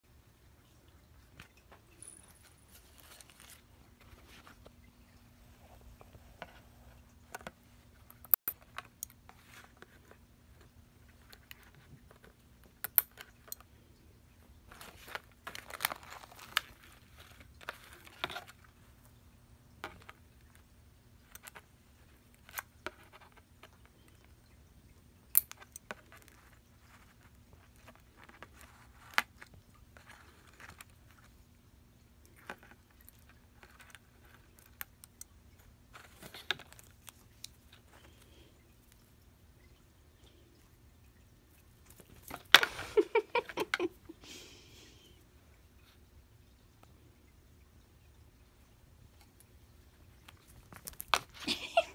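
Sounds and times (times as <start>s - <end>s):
card and plastic rustling: 1.5s - 4.8s, 14.7s - 18.7s, 35.7s - 38.2s.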